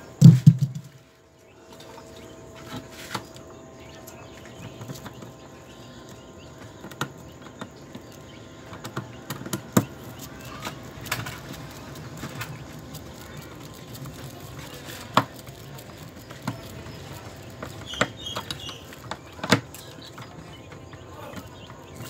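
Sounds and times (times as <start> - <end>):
sharp knock: 0.2 - 0.9.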